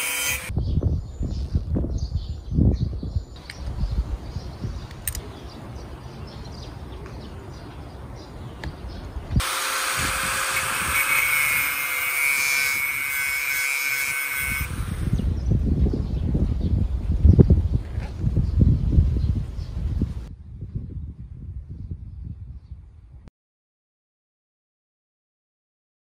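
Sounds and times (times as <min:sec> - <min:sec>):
angle grinder cutting metal: 0:00.0 - 0:00.5, 0:09.4 - 0:15.2.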